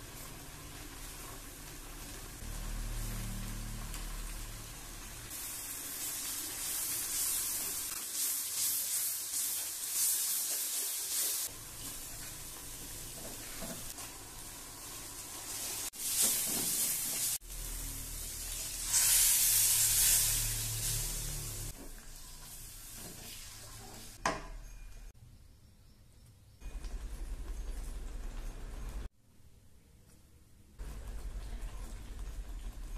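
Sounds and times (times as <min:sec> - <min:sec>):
spice paste sizzling in a wok: 0:00.0 - 0:24.2
spatula scraping a wok: 0:18.8 - 0:21.7.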